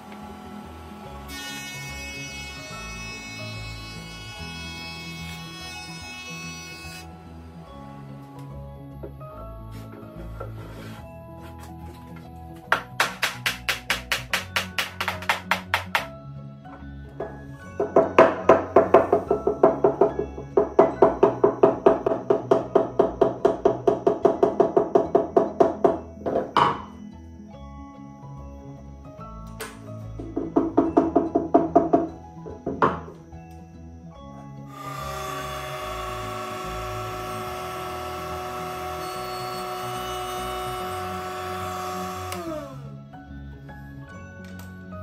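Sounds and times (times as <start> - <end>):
router high whine: 0.0 - 8.3, 34.7 - 43.0
board pushed along router fence: 9.8 - 11.6
mallet tapping on hardwood board: 12.7 - 16.1, 17.2 - 26.8.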